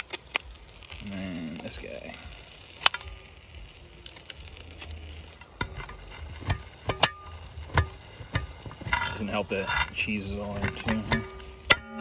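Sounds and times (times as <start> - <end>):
knife scraping crust off iron: 5.3 - 12.0.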